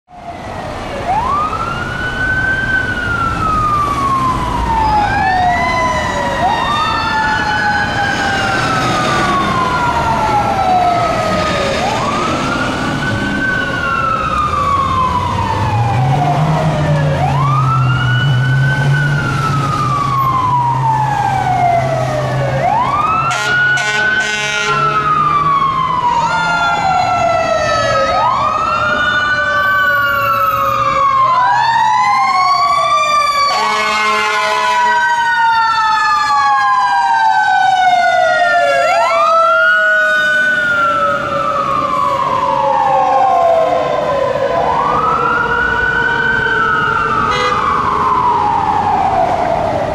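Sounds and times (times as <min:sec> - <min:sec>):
fire truck sirens wailing: 0:00.1 - 0:49.9
air horn blasts: 0:23.3 - 0:25.0, 0:33.5 - 0:35.0, 0:47.3 - 0:47.6.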